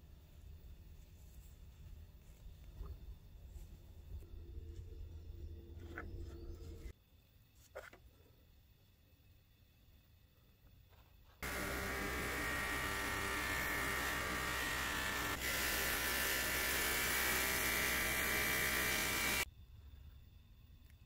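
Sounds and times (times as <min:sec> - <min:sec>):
buffing wheel motor hum: 0:11.4 - 0:19.4
metal rubbing on buffing wheel: 0:11.4 - 0:19.4.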